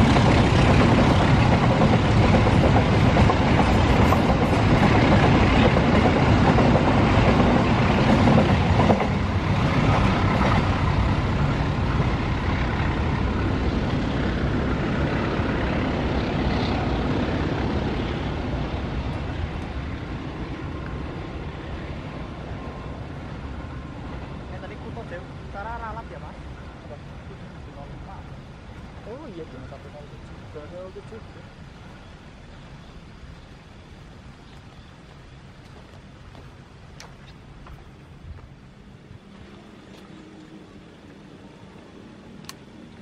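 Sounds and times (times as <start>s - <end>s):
freight train wheels on rails: 0.0s - 26.9s.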